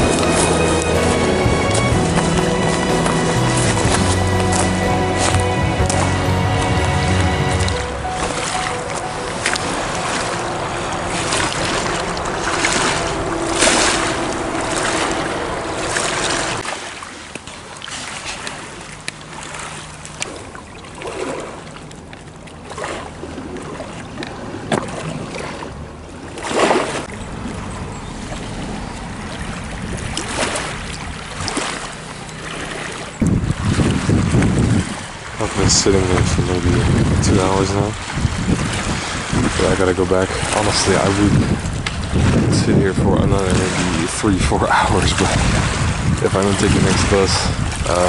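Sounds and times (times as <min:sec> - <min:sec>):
steady humming tones: 0:00.0 - 0:16.7
wind on microphone: 0:00.0 - 0:16.7, 0:33.2 - 0:48.0
waves lapping against rocks: 0:00.0 - 0:48.0.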